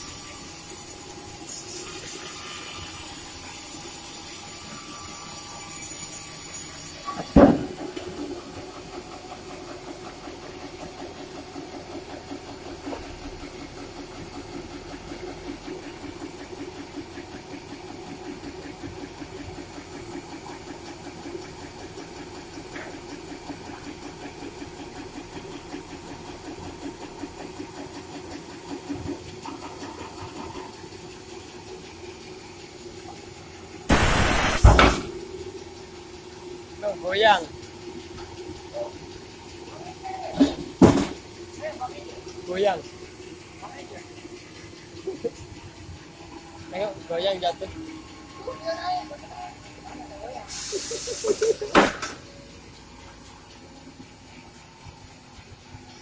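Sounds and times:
loud knock: 33.9s - 35.1s.

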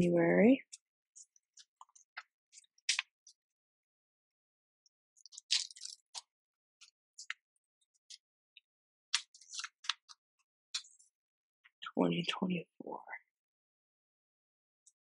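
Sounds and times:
paper crinkling and rustling: 5.2s - 6.2s, 9.2s - 10.1s.

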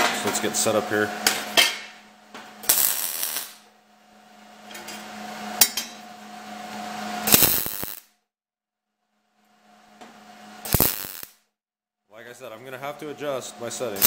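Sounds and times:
welding arc crackle and spatter: 2.6s - 3.6s, 7.2s - 8.1s, 10.6s - 11.4s.

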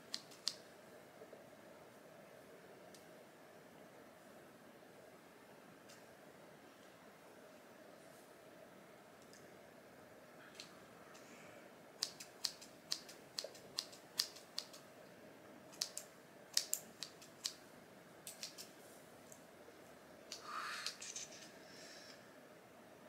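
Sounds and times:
scissors snipping hair: 0.1s - 0.6s, 12.0s - 14.8s, 15.7s - 17.6s, 18.2s - 18.7s.

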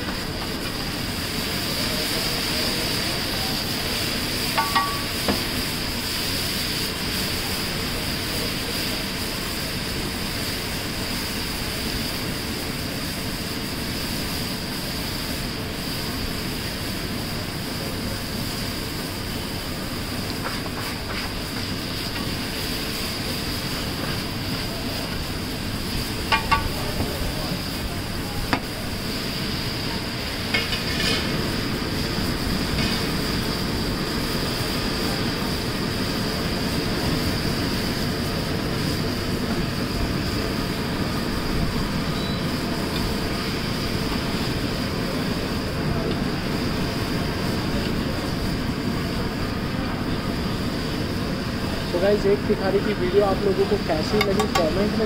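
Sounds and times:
burner rumbling: 0.0s - 55.0s
griddle sizzling hiss: 0.0s - 55.0s
metal spatula scraping griddle: 30.6s - 31.4s.

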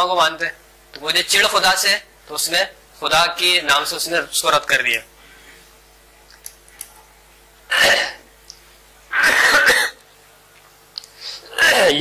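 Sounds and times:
person coughing: 7.7s - 8.3s, 9.1s - 10.0s, 11.5s - 12.0s.

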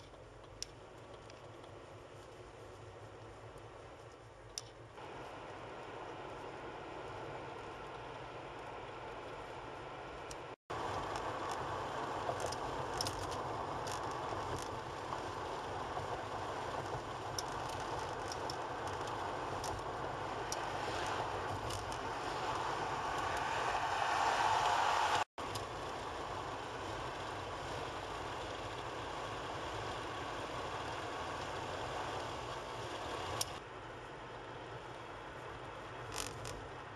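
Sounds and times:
light clicks and rattles: 0.0s - 4.9s, 10.2s - 15.3s, 16.0s - 19.9s
tyre and engine noise: 0.0s - 36.9s.

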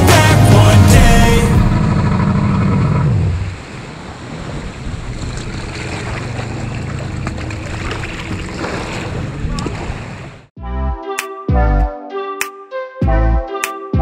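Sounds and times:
jet ski engine: 0.1s - 10.5s
water churning and sloshing: 1.7s - 10.5s
wind on microphone: 7.6s - 10.4s.

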